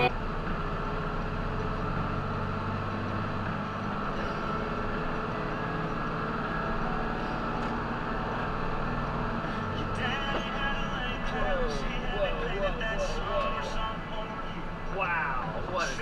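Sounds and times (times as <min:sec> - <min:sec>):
truck engine and road noise: 0:00.0 - 0:16.0.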